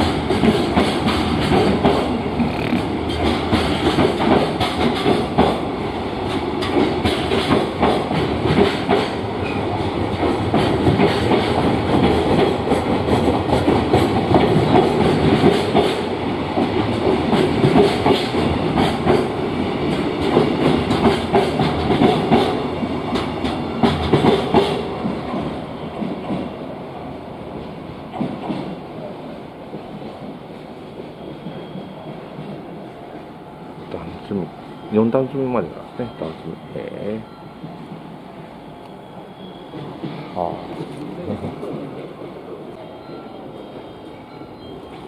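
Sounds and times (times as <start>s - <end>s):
train wheels clicking over rail joints: 0.0s - 26.5s, 27.6s - 28.8s
rumbling rail noise: 0.0s - 45.0s.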